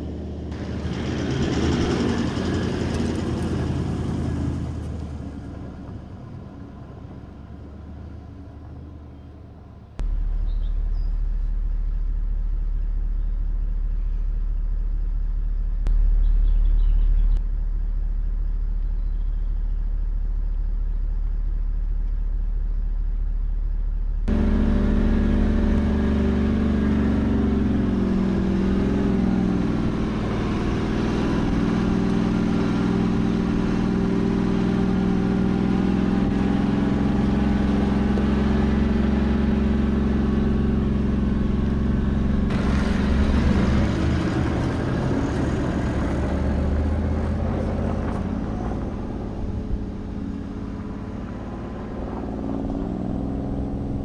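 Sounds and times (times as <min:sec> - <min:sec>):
vehicle engine drone: 0:00.0 - 0:54.0
tyres on gravel: 0:41.4 - 0:53.0.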